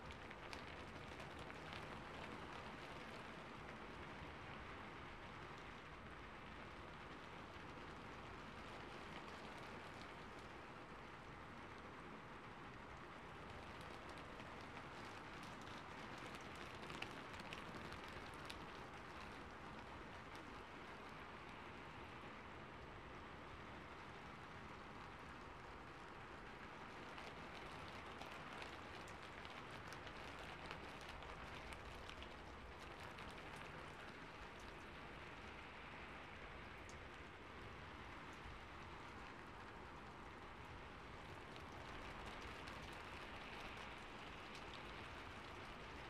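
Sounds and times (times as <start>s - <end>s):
faint steady rain: 0.0s - 46.0s.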